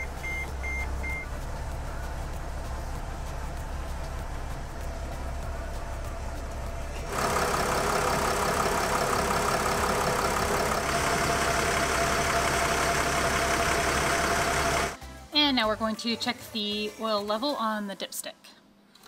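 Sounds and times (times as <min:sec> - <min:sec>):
diesel engine idling: 0:00.0 - 0:15.0.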